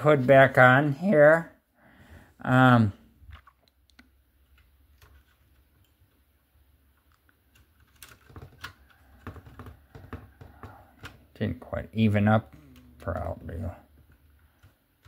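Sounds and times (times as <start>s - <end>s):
plastic clicks and taps: 7.0s - 11.2s.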